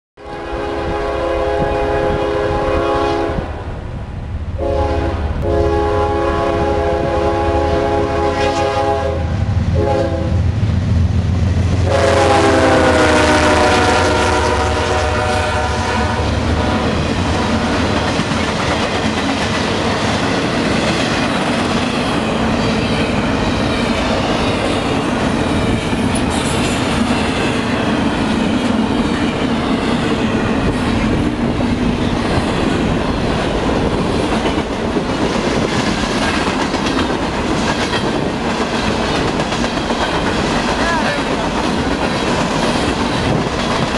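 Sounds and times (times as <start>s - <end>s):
locomotive air horn: 0.2s - 3.5s, 4.6s - 10.4s, 11.8s - 17.9s
locomotive engines rumbling: 0.4s - 43.9s
train wheels clicking over rails: 16.3s - 43.9s.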